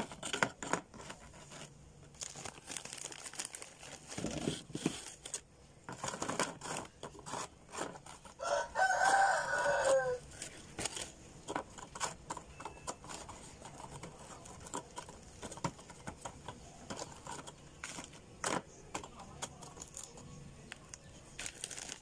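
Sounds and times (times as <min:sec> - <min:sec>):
plastic wrapper crinkling: 0:01.1 - 0:06.4, 0:19.7 - 0:22.0
crackers clicking into plastic container: 0:10.8 - 0:22.0.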